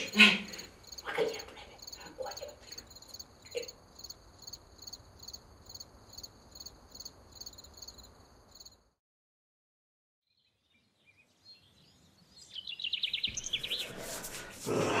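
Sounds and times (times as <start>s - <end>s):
crickets chirping: 0.0s - 9.0s.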